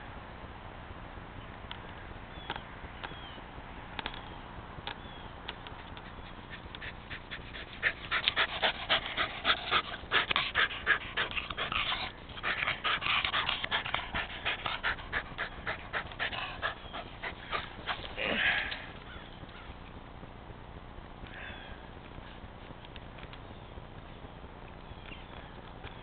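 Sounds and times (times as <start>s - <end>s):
dog panting rapidly: 5.8s - 18.6s.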